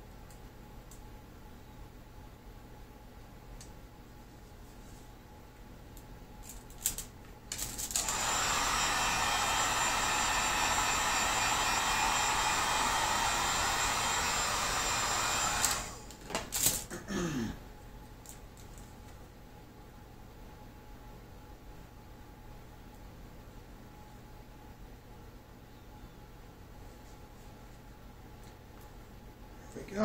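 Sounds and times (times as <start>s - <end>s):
heat gun blowing: 7.9s - 16.1s.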